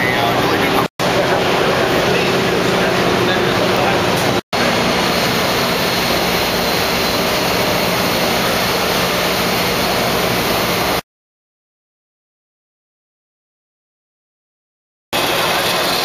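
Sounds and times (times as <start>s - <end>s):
crowd din in large hall: 0.0s - 4.9s, 15.2s - 16.0s.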